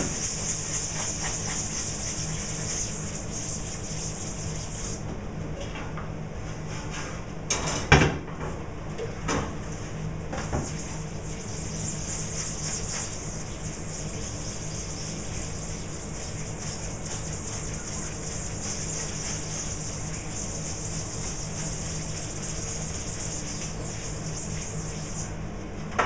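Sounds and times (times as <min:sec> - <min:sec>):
stiff brush scrubbing mesh screen: 0:00.0 - 0:05.0, 0:10.4 - 0:25.3
steady low hum: 0:00.0 - 0:05.5, 0:09.6 - 0:25.8.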